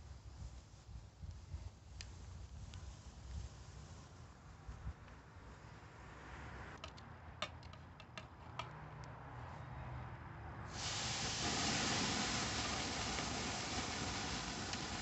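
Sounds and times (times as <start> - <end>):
steak sizzling on grill: 10.7 - 15.0.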